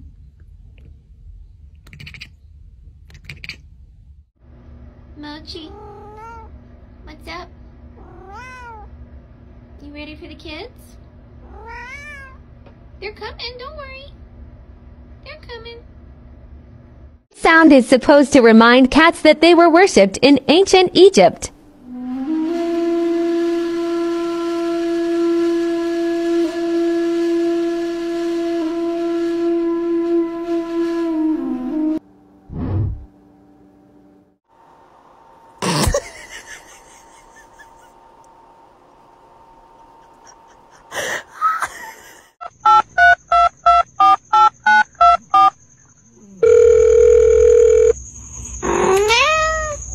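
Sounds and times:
long woodwind note: 0:21.8 - 0:32.1
steady telephone tone: 0:46.4 - 0:48.0.

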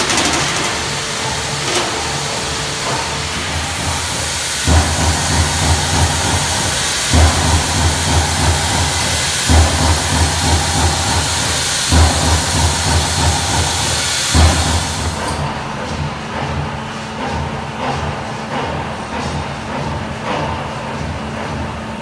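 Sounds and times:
punch press hiss: 0:00.0 - 0:15.4.

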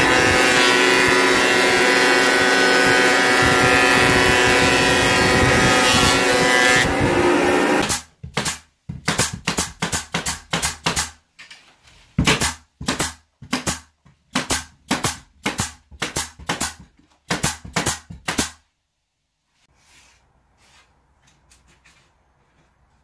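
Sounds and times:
nail gun firing into wood: 0:07.8 - 0:11.2, 0:12.2 - 0:18.6.

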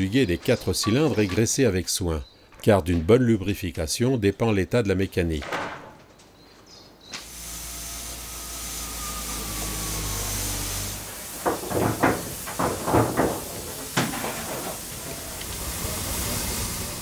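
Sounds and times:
steam locomotive hissing: 0:07.3 - 0:17.0
sharp metallic knocks: 0:11.4 - 0:14.9.

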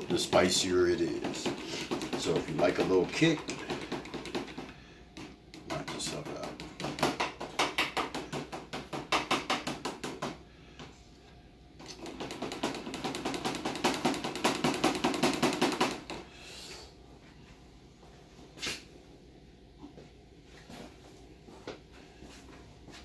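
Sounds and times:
utensil stirring in plastic container: 0:00.0 - 0:04.8.

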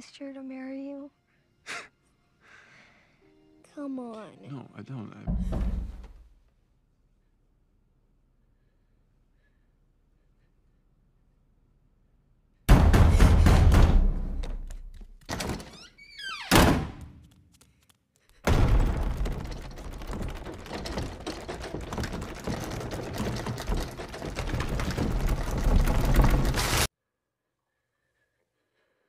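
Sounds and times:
heavy thud: 0:05.3 - 0:06.3, 0:18.4 - 0:26.9.

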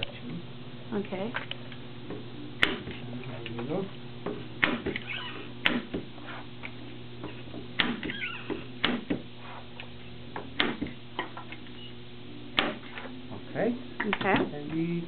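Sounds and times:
steady low hum: 0:00.0 - 0:15.0
short high squeak: 0:08.1 - 0:08.5.

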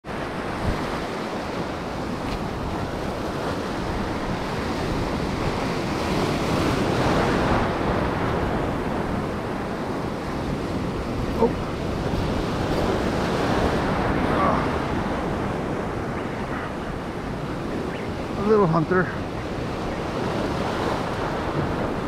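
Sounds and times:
surf washing over rocks: 0:00.0 - 0:22.0
wave breaking: 0:00.2 - 0:22.0.

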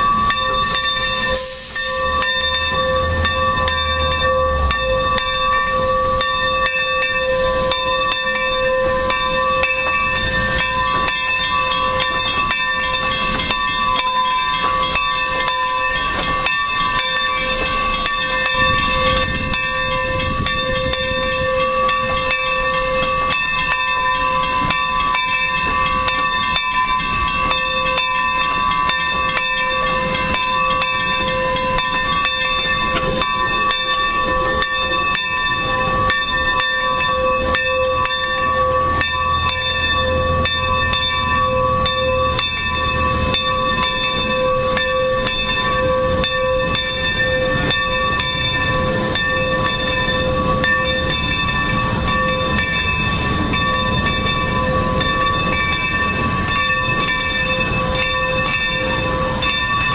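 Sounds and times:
ringing whistle-like tone: 0:00.0 - 0:12.1
steam locomotive hissing steam: 0:00.0 - 0:59.9.

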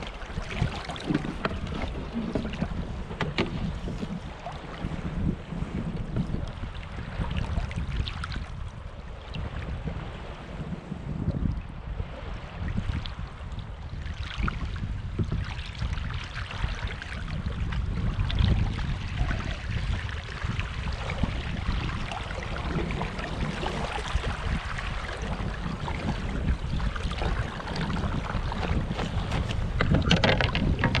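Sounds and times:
water splashing along hull: 0:00.0 - 0:31.0
wind buffeting microphone: 0:00.0 - 0:31.0.

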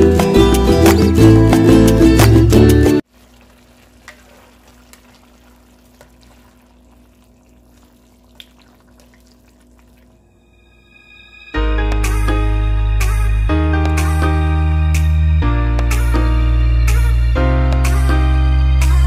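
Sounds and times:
background music: 0:00.0 - 0:03.0, 0:10.5 - 0:19.0
stew simmering: 0:03.0 - 0:10.3.

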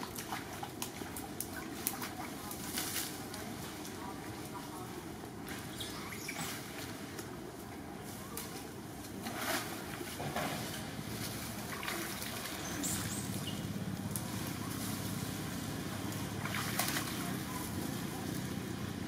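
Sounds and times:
splashing in muddy water: 0:00.0 - 0:03.3, 0:09.2 - 0:13.7, 0:14.3 - 0:18.1
low background rumble: 0:00.0 - 0:19.0.

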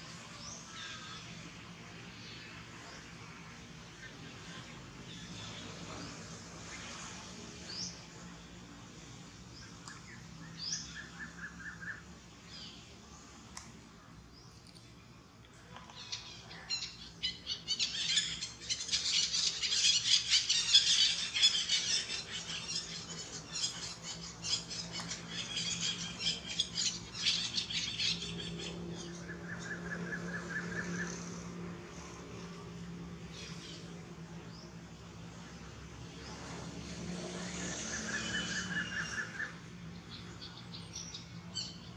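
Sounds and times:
birds chirping: 0:14.1 - 0:41.9
bird trill: 0:16.0 - 0:31.3.

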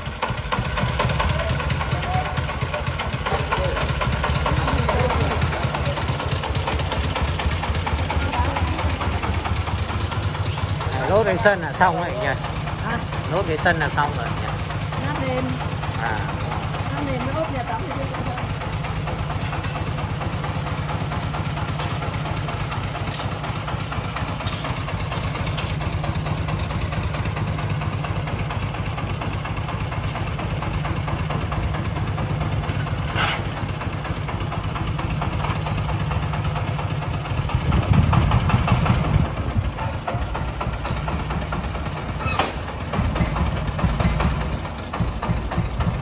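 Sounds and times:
diesel engine idling: 0:00.0 - 0:46.0.

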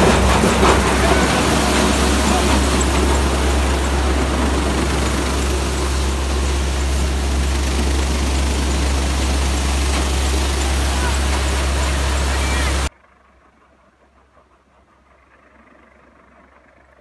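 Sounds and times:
wheat thresher running: 0:00.0 - 0:12.9.

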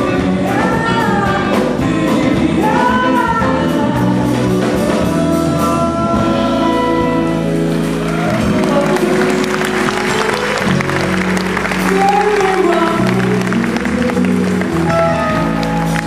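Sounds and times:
live band playing: 0:00.0 - 0:16.0
audience applause: 0:07.7 - 0:16.0.

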